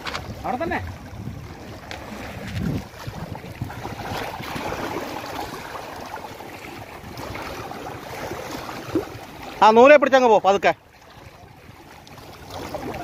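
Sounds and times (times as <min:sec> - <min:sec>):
wind rumbling on microphone: 0:00.0 - 0:09.6
small waves lapping at shore: 0:00.0 - 0:13.0.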